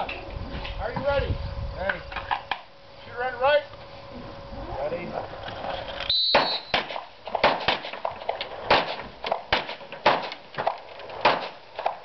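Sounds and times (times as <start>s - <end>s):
handgun shots: 6.3s - 12.0s.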